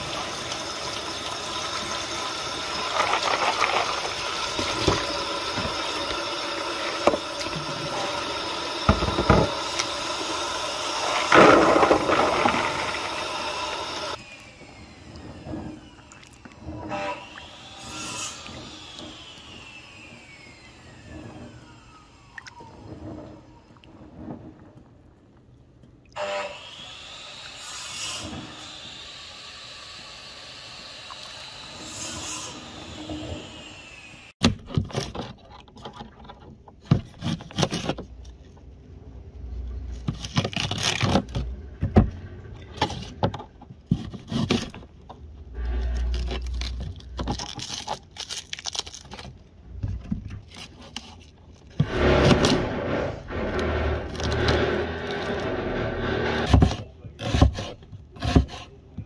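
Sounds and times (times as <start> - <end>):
hands stirring beans in water: 0.0 - 14.2
knife cutting onions: 56.4 - 58.7.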